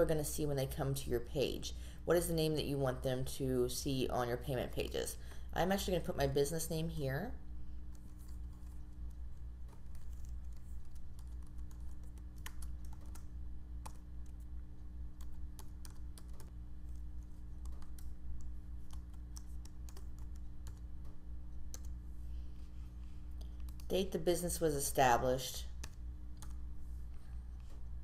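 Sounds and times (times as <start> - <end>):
steady low hum: 0.0 - 28.0
computer keyboard typing: 7.9 - 22.0, 23.5 - 23.9, 25.7 - 26.6.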